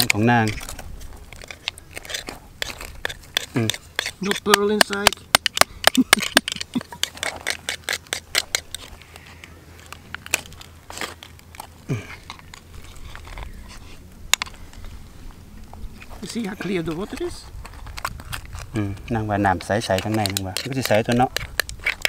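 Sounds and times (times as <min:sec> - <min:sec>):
oyster shells clicking and cracking: 0:00.0 - 0:13.6, 0:16.0 - 0:22.0.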